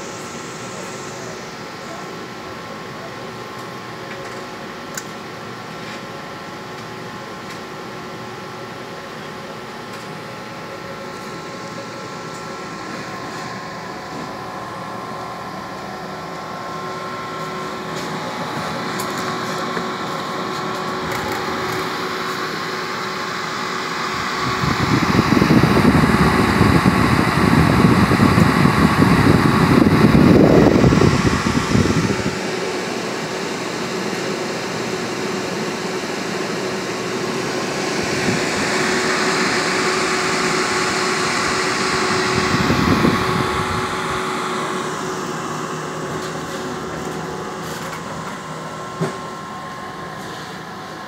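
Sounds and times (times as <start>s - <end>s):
cooling fans humming: 0.0s - 51.0s
loud rush of fan air: 0.0s - 51.0s.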